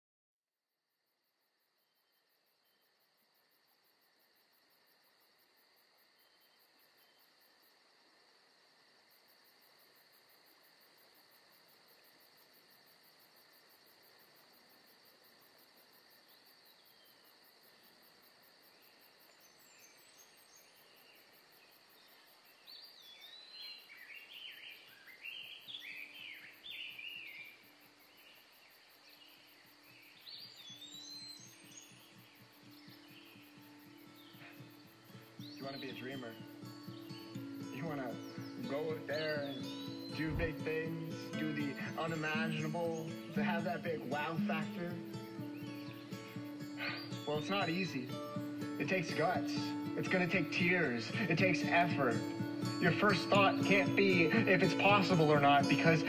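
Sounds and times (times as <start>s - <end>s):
insects trilling: 0.8s - 56.0s
birds chirping: 18.7s - 56.0s.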